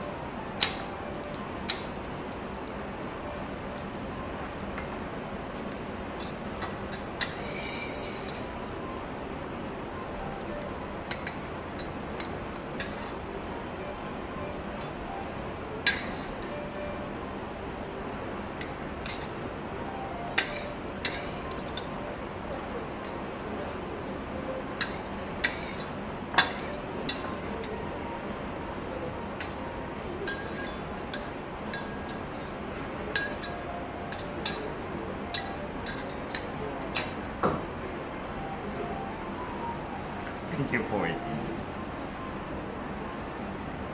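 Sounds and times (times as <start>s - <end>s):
kitchen background noise: 0.0s - 43.9s
steady background hiss: 0.0s - 43.9s
metal spatulas clinking and scraping: 5.6s - 8.6s, 11.1s - 13.2s, 15.8s - 16.4s, 18.5s - 19.4s, 20.4s - 22.0s, 24.8s - 27.8s, 30.3s - 34.6s, 35.3s - 37.1s.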